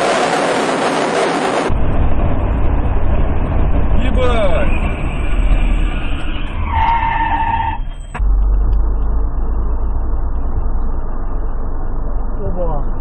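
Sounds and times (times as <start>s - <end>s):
car engine and road noise: 0.0s - 13.0s
steady held tone: 7.8s - 13.0s.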